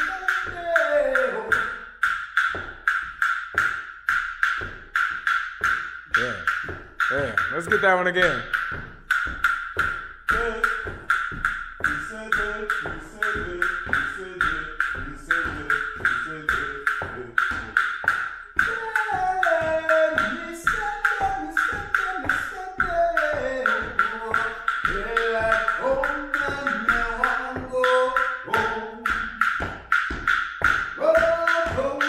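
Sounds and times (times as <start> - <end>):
person singing: 0.0 - 1.8, 10.3 - 11.0, 11.8 - 17.8, 18.6 - 29.6, 31.0 - 32.0
drumsticks clicking together: 0.0 - 32.0.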